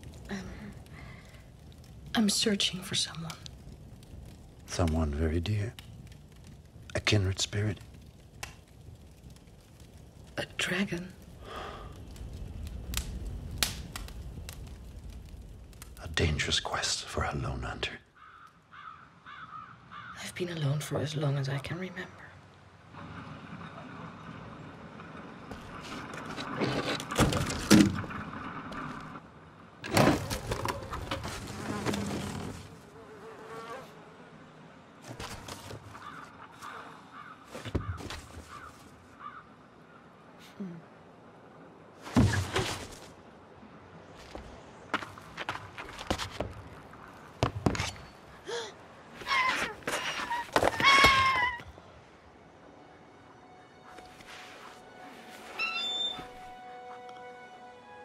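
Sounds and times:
rustles and clatters: 29.8s - 32.8s, 35.0s - 36.7s, 37.5s - 39.1s
knocks and footfalls: 37.5s - 38.9s, 42.1s - 43.1s, 44.2s - 48.1s
creature squealing cries: 49.2s - 51.7s.

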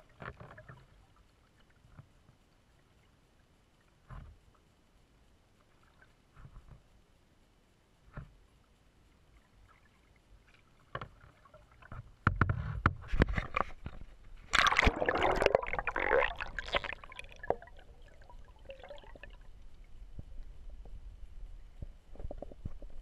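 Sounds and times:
paddle knocks and thumps: 11.9s - 14.9s
loud water splashing: 14.5s - 16.9s.

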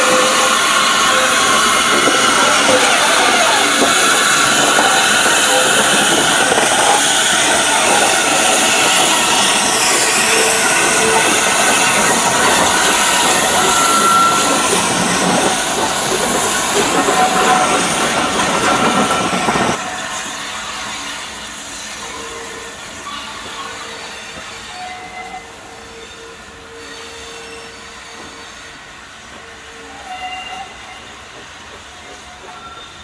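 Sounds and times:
distant train running: 0.0s - 25.8s
steam locomotive hissing: 0.0s - 33.0s.

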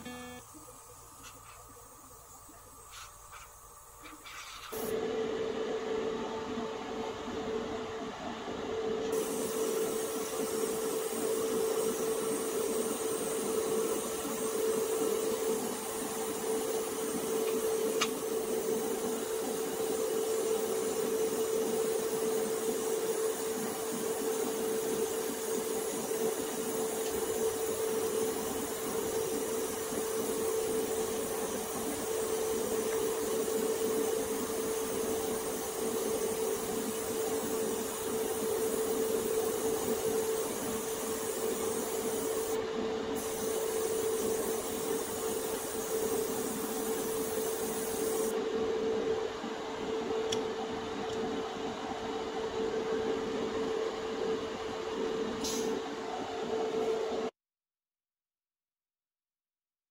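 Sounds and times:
extraction fan hum: 0.0s - 57.3s
airbrush hissing: 9.2s - 18.2s, 27.4s - 42.6s, 43.2s - 48.4s.

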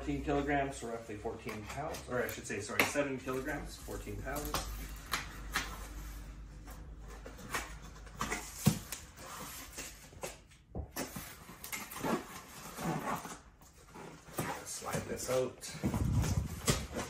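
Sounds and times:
cardboard flaps scraping and rustling: 0.3s - 17.0s
scissors cutting packing tape: 7.3s - 14.6s.

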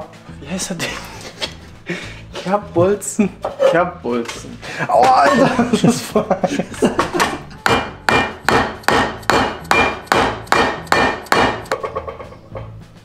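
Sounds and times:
hammer striking metal: 7.2s - 12.7s.

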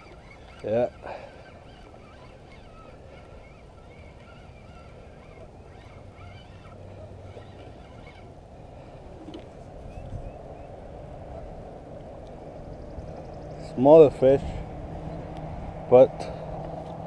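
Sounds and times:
distant birds calling: 0.0s - 17.0s.

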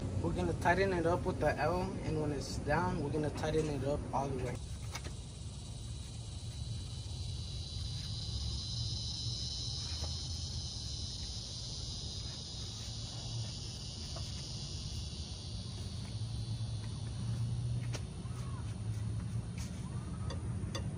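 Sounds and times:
crickets chirping: 0.0s - 20.9s.

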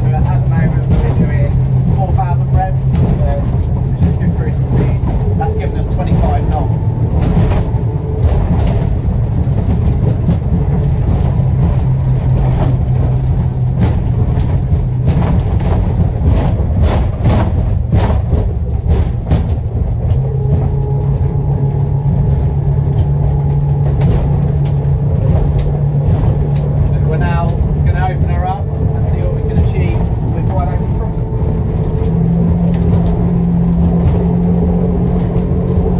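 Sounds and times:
outboard engines droning: 0.0s - 35.9s
sharp knocks: 0.2s - 21.0s.

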